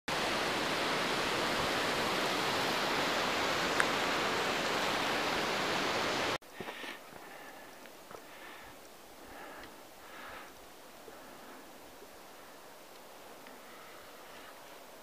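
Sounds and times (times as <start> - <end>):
waterfall rushing: 0.1 - 6.4.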